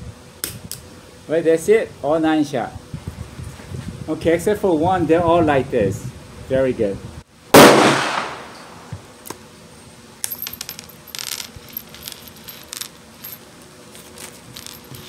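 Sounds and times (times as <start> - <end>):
loud sharp gunshot: 7.5 - 8.8
metallic clinks of brass casings: 10.2 - 13.4, 14.1 - 15.0.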